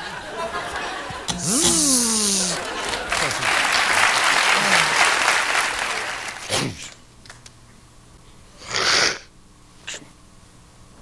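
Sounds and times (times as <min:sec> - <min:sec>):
audience applause: 0:02.2 - 0:06.5.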